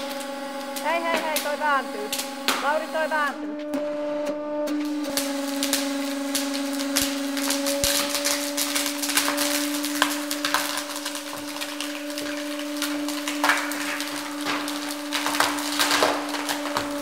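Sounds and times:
hydraulic press humming: 0.0 - 17.0.

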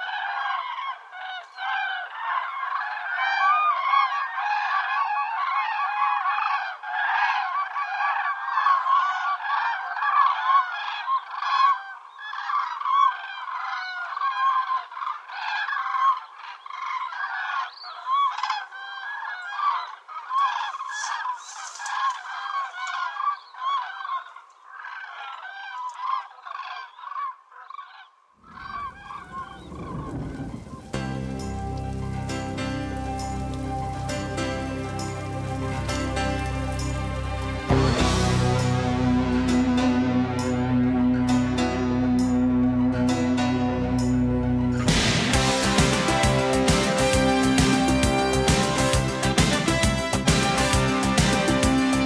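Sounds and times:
cranes trumpeting calls: 0.0 - 52.0
music: 30.8 - 52.0.

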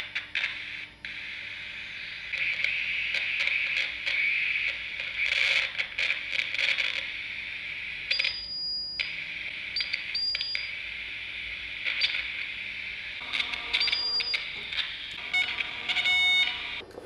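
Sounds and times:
walkie-talkie static with crackles: 0.0 - 8.4, 9.0 - 17.0
high steady beep: 8.1 - 10.7, 13.2 - 16.8.

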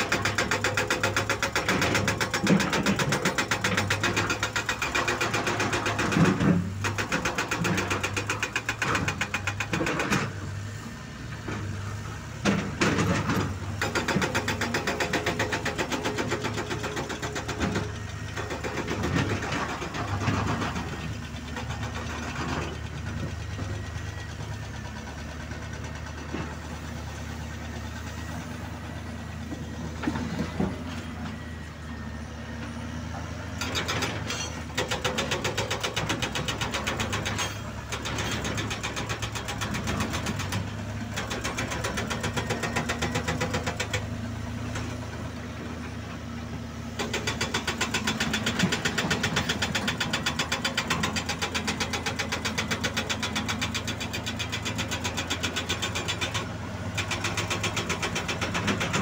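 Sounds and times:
hydraulic rock breaker hammering: 0.0 - 10.6, 12.4 - 23.8, 33.5 - 45.2, 47.0 - 59.0
diesel machines running: 0.0 - 59.0.

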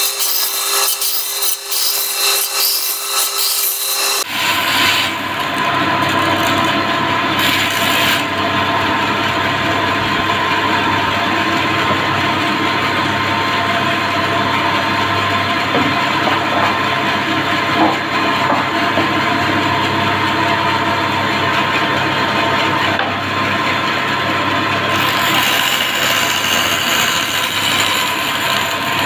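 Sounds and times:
saw blade rasping through wood: 0.0 - 8.3, 24.9 - 29.0
band saw humming: 0.0 - 15.3, 24.7 - 29.0.

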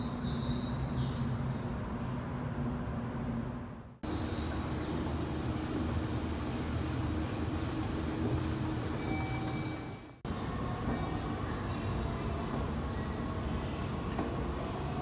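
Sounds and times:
low rumble and machinery hum: 0.0 - 15.0.

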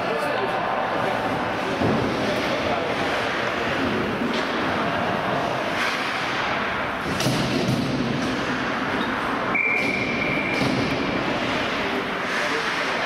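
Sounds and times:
referee's whistle blast: 9.5 - 10.6
sharp knock: 9.7 - 11.0.

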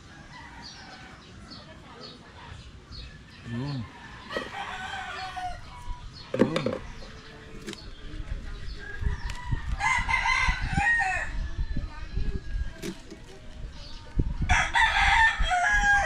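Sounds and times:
rooster crowing: 3.8 - 5.7.

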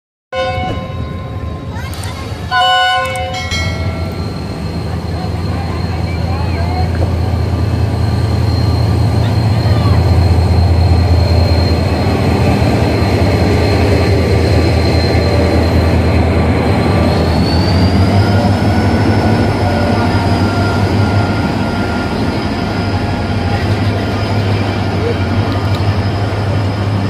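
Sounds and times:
diesel locomotive engine drone: 0.4 - 27.0
wheel and rail noise: 0.5 - 27.0.

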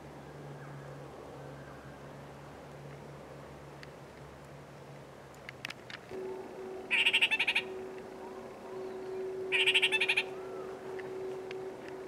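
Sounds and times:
faint steady tone: 0.0 - 12.0
parakeet chattering: 9.5 - 10.3.

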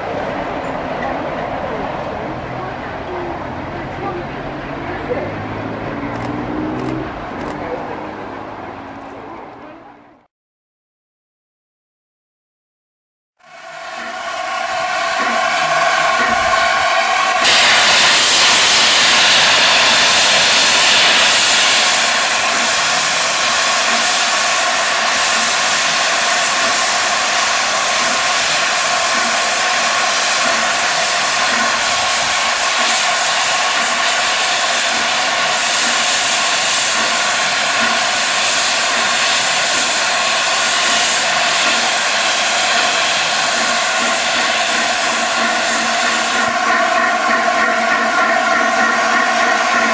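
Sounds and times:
steam hissing from safety valves: 13.4 - 49.9.

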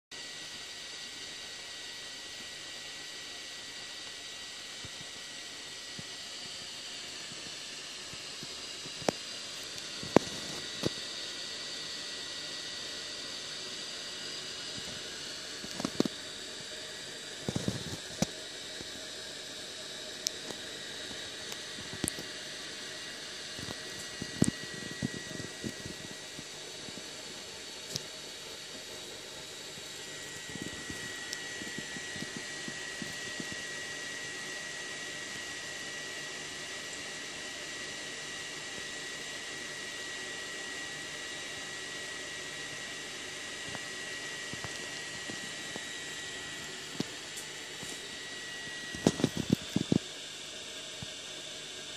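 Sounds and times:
high whine: 3.6 - 35.8, 43.0 - 51.8.

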